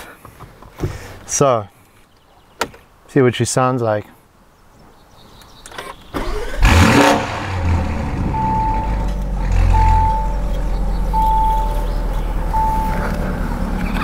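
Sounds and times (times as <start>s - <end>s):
car engine starting and idling: 5.9s - 14.0s
car warning chime beeping: 8.3s - 13.4s.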